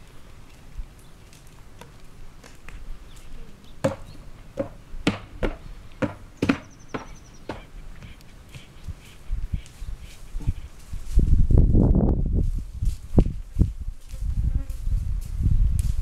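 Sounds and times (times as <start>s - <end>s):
horse hooves knocking on board: 3.8s - 7.7s.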